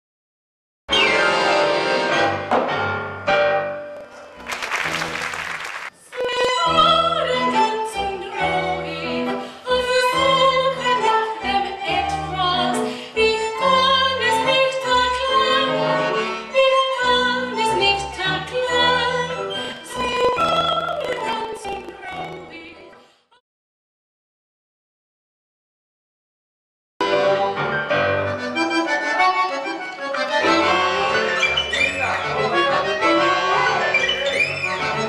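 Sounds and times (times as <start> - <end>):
tango ensemble playing: 0.9 - 22.7, 27.0 - 35.0
woman singing: 6.0 - 23.0.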